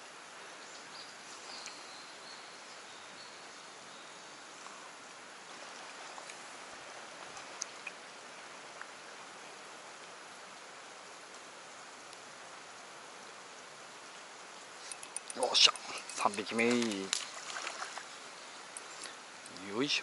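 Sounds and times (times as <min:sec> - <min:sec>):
steady water noise: 0:00.0 - 0:20.0
faint clicks: 0:07.2 - 0:08.0, 0:14.8 - 0:19.7.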